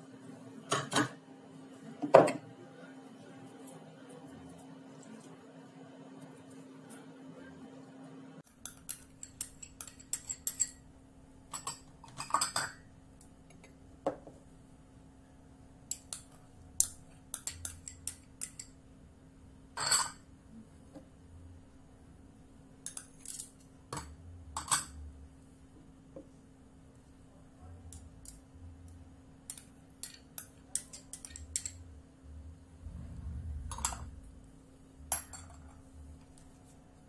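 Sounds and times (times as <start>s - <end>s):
glass bowls clinking: 19.8s - 20.3s.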